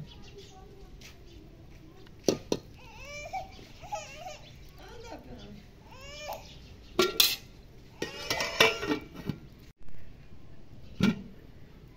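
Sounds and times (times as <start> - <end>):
metal pots clanking together: 7.0 - 9.5, 11.0 - 11.3.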